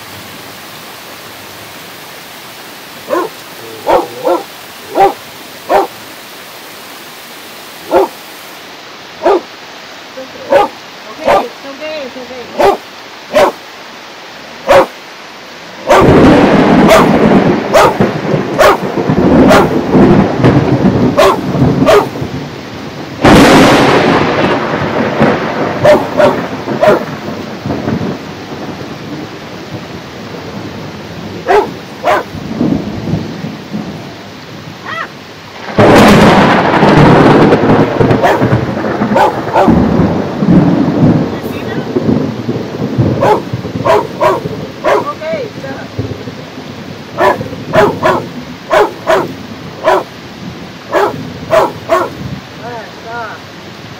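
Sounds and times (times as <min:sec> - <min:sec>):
heavy rain: 0:00.0 - 0:53.9
thunder claps rumbling: 0:15.6 - 0:53.4.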